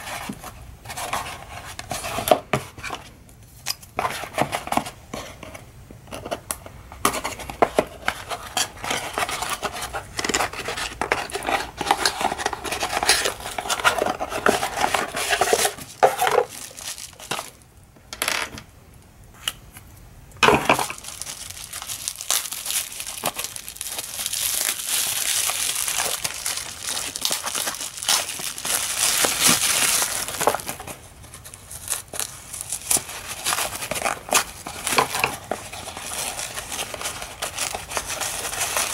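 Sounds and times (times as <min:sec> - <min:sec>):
paper wrapping rustling: 0:07.0 - 0:17.6, 0:20.4 - 0:38.9
bubble wrap crinkling: 0:07.2 - 0:17.7, 0:20.5 - 0:38.9
cardboard flaps rustling: 0:23.1 - 0:38.9.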